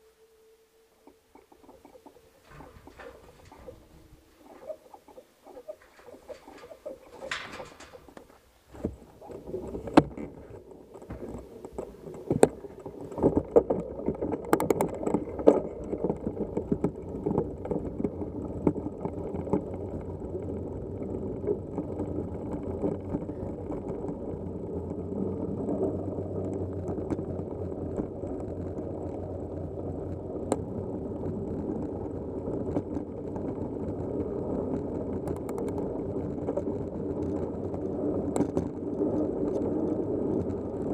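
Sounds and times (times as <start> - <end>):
bike rattling: 2.2 - 20.9
sharp knocks over bumps: 2.4 - 18.8
bike tyres rumbling on dirt: 2.4 - 40.9.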